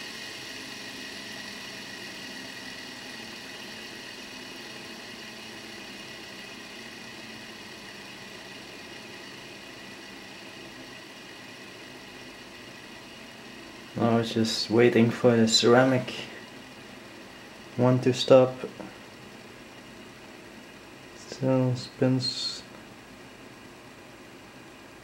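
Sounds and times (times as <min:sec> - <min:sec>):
fidget spinner whirring: 0:00.0 - 0:25.0.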